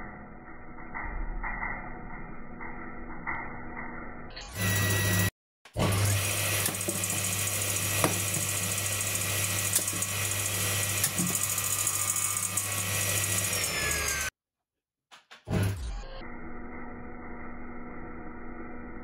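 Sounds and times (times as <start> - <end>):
circular saw running: 2.6 - 14.4.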